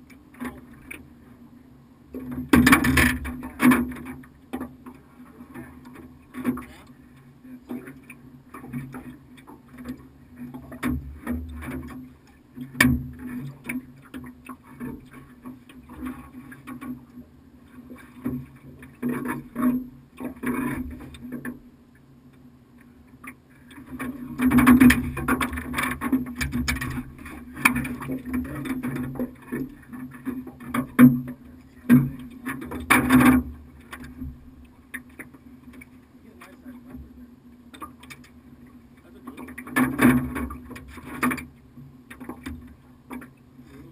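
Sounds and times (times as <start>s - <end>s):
steady low hum: 0.0s - 43.9s
knocks and clatter in metal boat: 2.1s - 22.0s, 22.8s - 43.9s.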